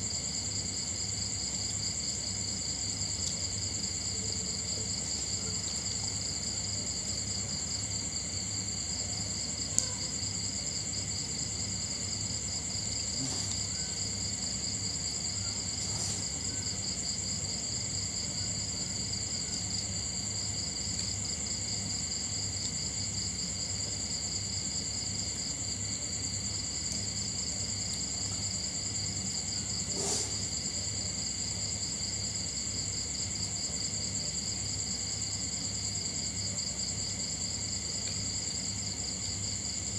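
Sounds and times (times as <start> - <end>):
crickets trilling: 0.0 - 39.9.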